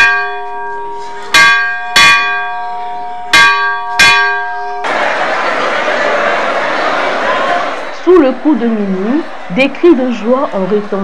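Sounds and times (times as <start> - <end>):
church bell ringing: 0.0 - 4.9
crowd of voices: 4.5 - 11.0.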